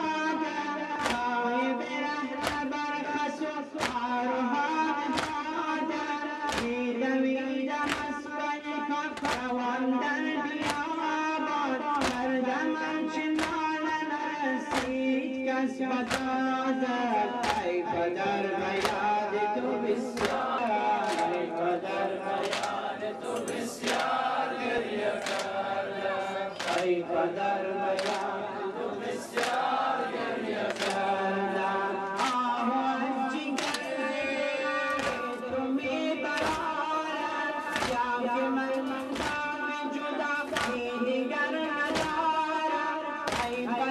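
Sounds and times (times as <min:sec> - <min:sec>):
men chanting together: 0:00.0 - 0:43.9.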